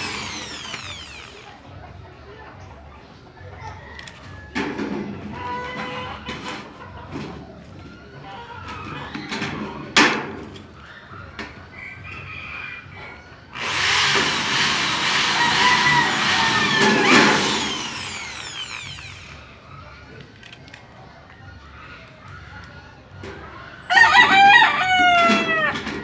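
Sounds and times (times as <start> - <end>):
electric drill grinding through metal: 0.0 - 1.7, 13.6 - 19.6.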